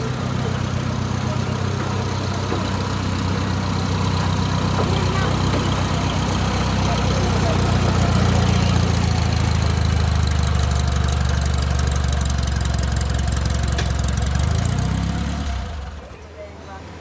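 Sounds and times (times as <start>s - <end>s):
diesel locomotive engine running: 0.0s - 17.0s
sharp click: 13.8s - 14.0s.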